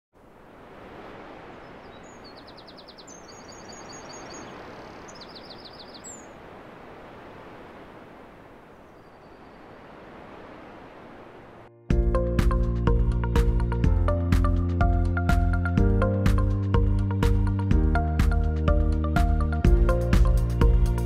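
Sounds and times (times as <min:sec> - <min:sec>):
small birds chirping: 0:01.5 - 0:06.6, 0:08.5 - 0:09.9.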